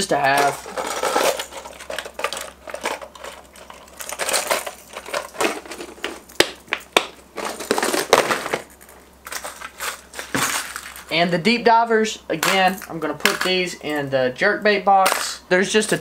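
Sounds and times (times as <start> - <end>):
plastic lures rattling: 0.3 - 6.3.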